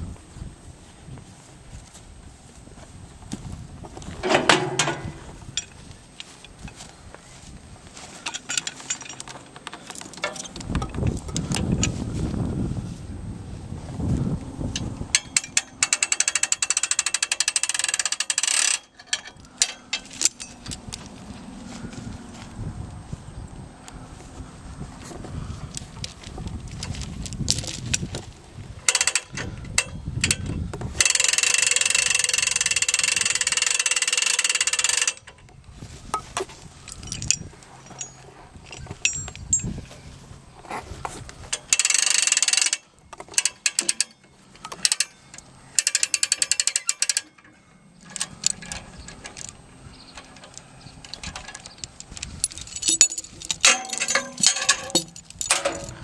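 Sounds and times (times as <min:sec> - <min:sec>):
metal clanks: 0:04.2 - 0:06.4, 0:14.8 - 0:21.2, 0:41.5 - 0:56.0
chain rattling: 0:08.0 - 0:12.0, 0:14.7 - 0:21.3, 0:25.6 - 0:35.4, 0:36.2 - 0:40.0, 0:41.5 - 0:56.0
rapid ratchet clicking: 0:15.2 - 0:20.1, 0:31.0 - 0:35.3, 0:41.6 - 0:44.2, 0:45.8 - 0:47.4.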